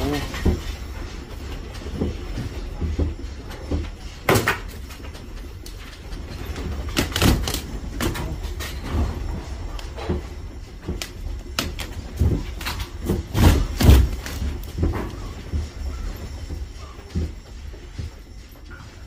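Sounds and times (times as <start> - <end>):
building rattling and knocking: 0.0 - 19.0
earthquake rumble: 0.0 - 19.0.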